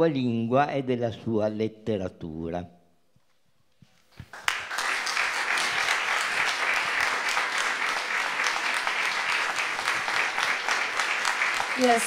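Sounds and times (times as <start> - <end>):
audience applause: 4.3 - 12.0.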